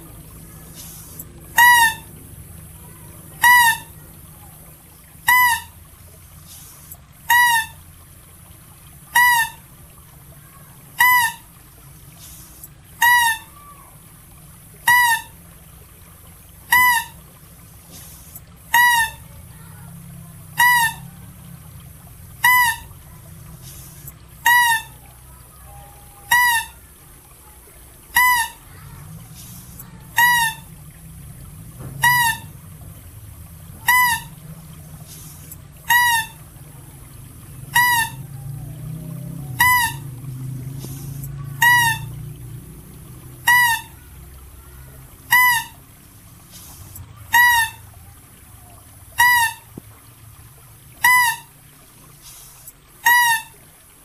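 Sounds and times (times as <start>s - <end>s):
mouse deer calling: 0.8s - 2.1s, 2.8s - 4.5s, 5.2s - 5.7s, 7.3s - 7.8s, 9.1s - 9.6s, 11.0s - 11.4s, 13.0s - 14.0s, 14.8s - 15.4s, 16.7s - 17.2s, 18.0s - 19.3s, 20.6s - 21.0s, 22.4s - 22.9s, 23.6s - 26.8s, 28.1s - 28.7s, 29.4s - 30.7s, 32.0s - 32.5s, 33.8s - 34.4s, 35.1s - 36.4s, 37.7s - 38.8s, 39.4s - 40.0s, 40.8s - 42.1s, 43.5s - 44.0s, 45.3s - 45.8s, 46.6s - 47.8s, 49.2s - 49.7s, 51.0s - 51.5s, 53.0s - 53.5s.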